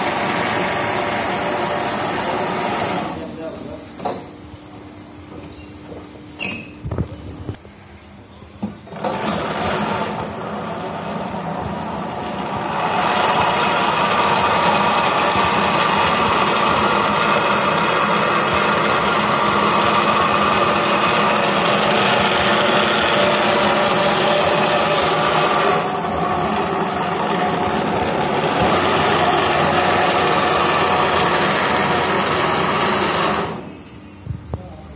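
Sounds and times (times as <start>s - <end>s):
sewing machine stitching: 0.0s - 3.2s, 8.9s - 33.7s.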